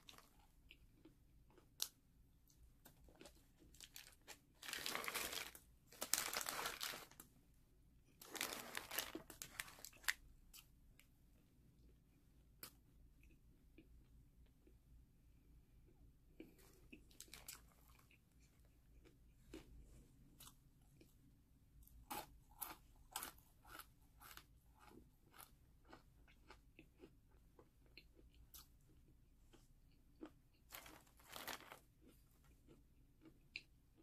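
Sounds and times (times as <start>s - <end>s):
crisp snack crunching: 0.0s - 2.0s, 3.2s - 7.3s, 8.2s - 10.7s, 16.6s - 18.4s, 30.2s - 33.6s.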